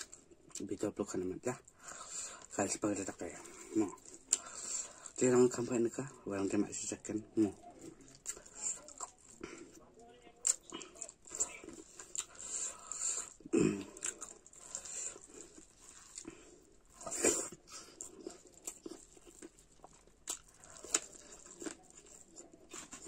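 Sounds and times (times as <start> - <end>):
wet chewing and lip smacks: 7.5 - 9.8, 10.4 - 23.0.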